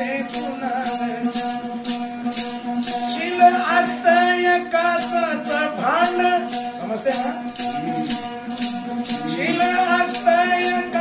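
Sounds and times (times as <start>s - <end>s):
man singing: 0.0s - 1.9s, 2.9s - 11.0s
jingling percussion rhythm: 0.0s - 11.0s
one-string lute drone: 7.5s - 11.0s.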